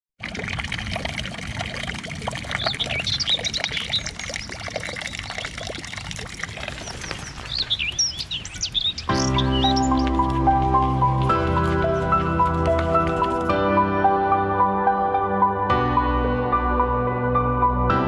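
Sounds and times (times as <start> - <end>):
running water splashing: 0.2 - 13.6
small birds chirping: 2.2 - 11.2.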